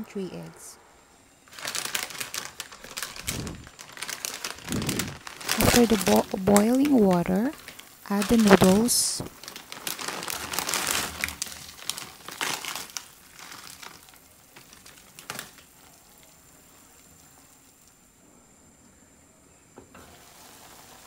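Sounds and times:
boiling water bubbling: 2.7 - 18.2, 19.9 - 21.0.

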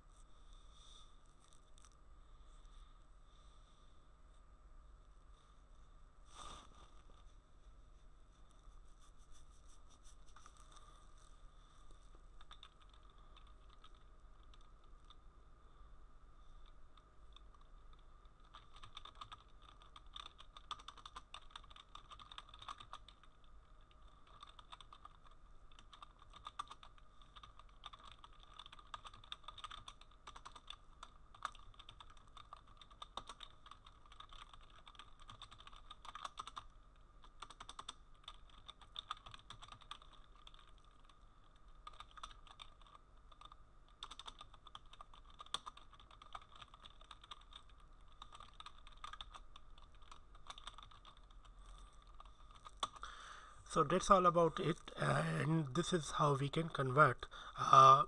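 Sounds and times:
steady low hum: 0.0 - 58.0
computer keyboard typing: 12.4 - 15.2, 16.6 - 53.1.

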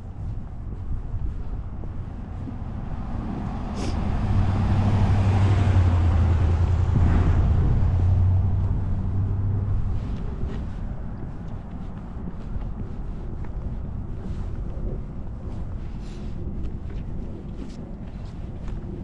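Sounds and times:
car driving past: 2.7 - 10.1.

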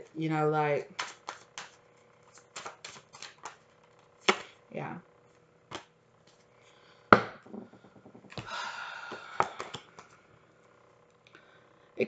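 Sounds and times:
cards rustling: 0.8 - 4.6, 9.2 - 10.2
cards clicking and tapping: 0.9 - 4.6, 5.7 - 6.4, 9.1 - 10.2.

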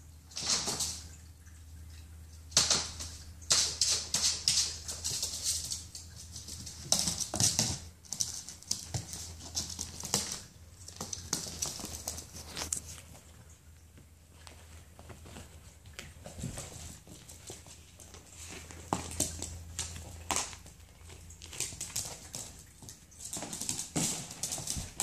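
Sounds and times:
dog claws clicking on wooden floor: 2.6 - 13.1, 15.0 - 25.0.

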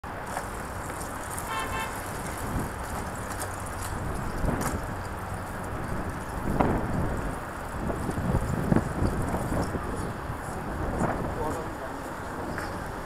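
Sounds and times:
bicycle road noise: 0.0 - 13.0
light knocks from road bumps: 0.2 - 9.8
wind rush on microphone: 0.5 - 13.0.

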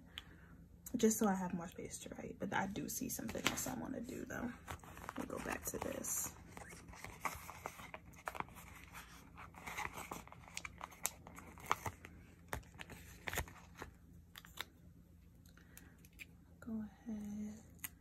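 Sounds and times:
paper sheet crinkling: 4.5 - 14.7.

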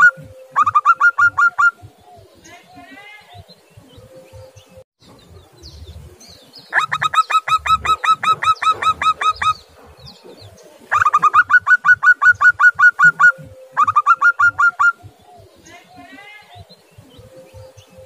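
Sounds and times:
dove calling staccato notes: 0.0 - 18.0.

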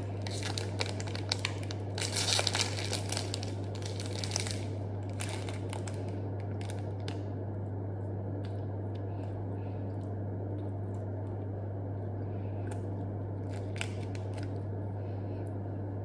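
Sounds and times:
plastic wrapper crinkling: 0.0 - 7.3, 13.4 - 14.6
steady low hum: 0.0 - 16.0.

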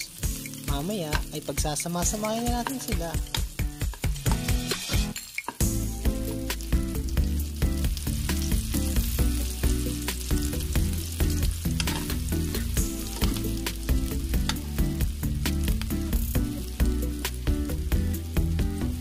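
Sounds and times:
background music with beat: 0.0 - 19.0
food sizzling in oil: 0.0 - 19.0.

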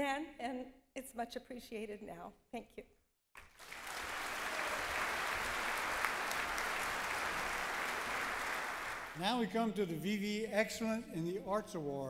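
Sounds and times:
audience applauding: 3.4 - 9.7.

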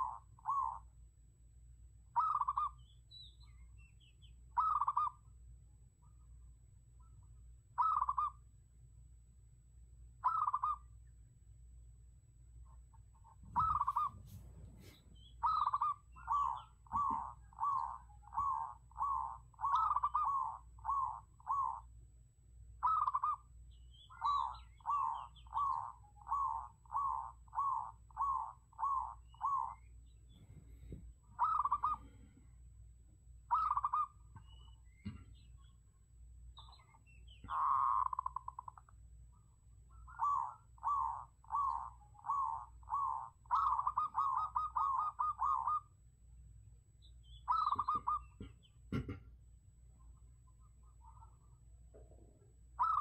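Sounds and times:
dove cooing: 0.0 - 0.9, 2.2 - 2.8, 4.6 - 5.2, 7.8 - 8.4, 10.2 - 10.9, 13.3 - 21.9, 22.8 - 23.5, 24.1 - 32.4, 33.5 - 35.7, 36.6 - 38.8, 39.9 - 45.9, 47.5 - 49.2, 50.8 - 53.0.

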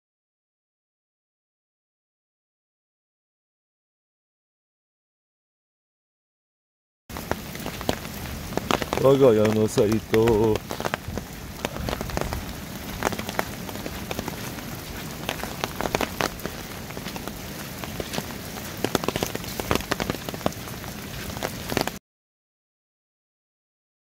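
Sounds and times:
raindrops ticking close by: 7.1 - 22.0
steady rain falling: 7.1 - 22.0.

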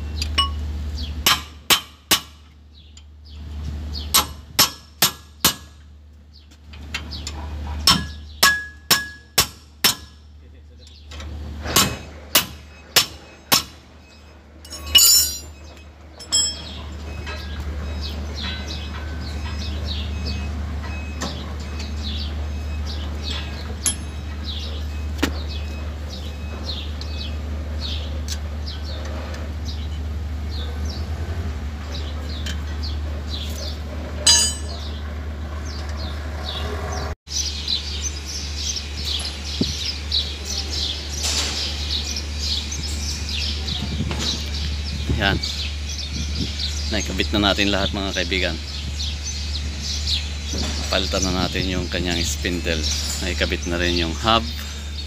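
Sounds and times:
birds chirping: 0.0 - 55.0
hammer striking metal: 1.2 - 2.4, 4.1 - 5.8, 7.8 - 10.2, 11.7 - 13.8, 14.7 - 15.6, 16.2 - 17.4, 23.8 - 24.3, 34.2 - 34.9.

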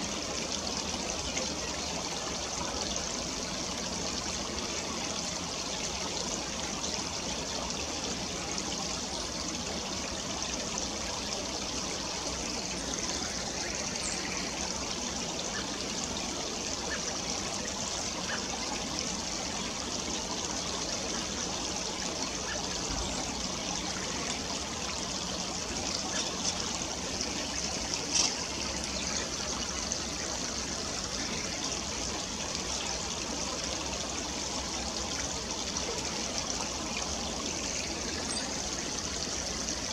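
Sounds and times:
stream trickling over rocks: 0.0 - 39.9.

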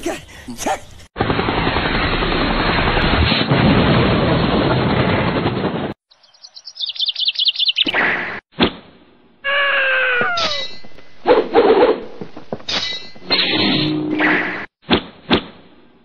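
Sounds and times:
loud dense crackling: 1.2 - 6.0
high downward-sliding chirps: 6.1 - 8.0.

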